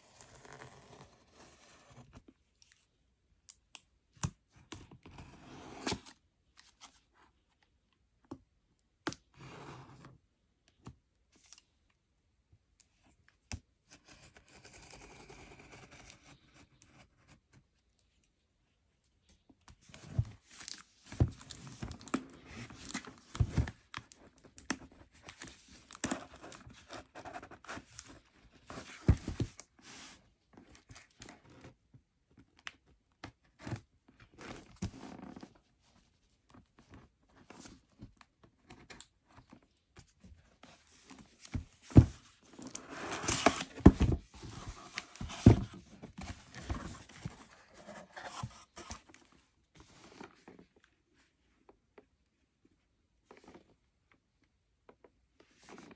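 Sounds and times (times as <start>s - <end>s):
cardboard flaps scraping: 41.4s - 48.9s.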